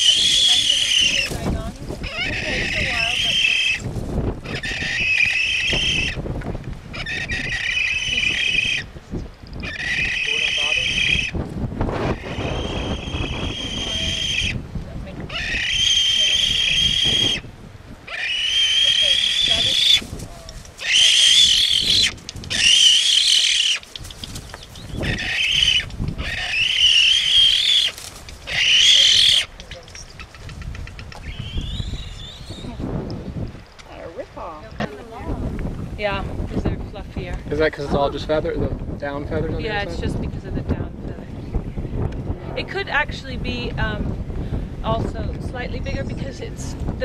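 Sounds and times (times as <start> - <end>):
bird high rasping call: 0.0 - 6.2, 20.8 - 32.7.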